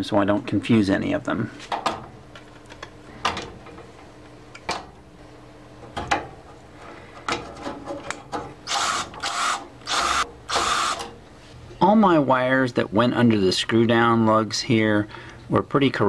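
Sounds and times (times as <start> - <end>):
cordless drill-driver bursts: 8.7 - 11.1.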